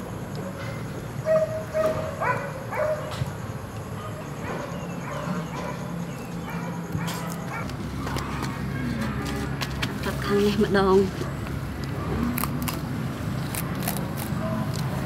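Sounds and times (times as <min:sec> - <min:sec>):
dog yelping: 0:01.2 - 0:03.1, 0:04.0 - 0:07.7
dog chirping: 0:04.0 - 0:07.7.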